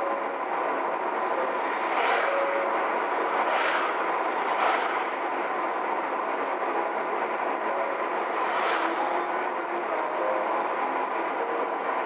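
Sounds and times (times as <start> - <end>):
car road and tyre noise: 0.0 - 12.0
cars swishing past: 1.6 - 5.6, 8.2 - 9.3.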